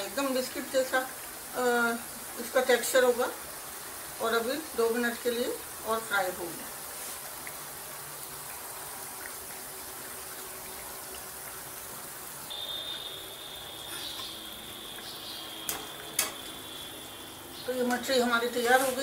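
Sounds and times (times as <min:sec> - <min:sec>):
deep-frying sizzling hiss: 0:00.0 - 0:19.0
thin high whine: 0:12.5 - 0:17.4
skimmer clicking against pan: 0:15.7 - 0:16.4.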